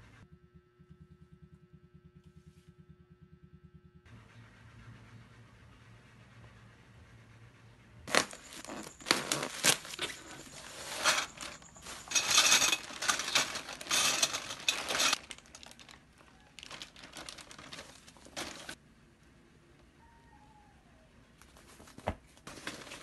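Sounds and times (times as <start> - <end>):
packaging crinkling and rustling: 8.1 - 18.8, 21.6 - 23.0.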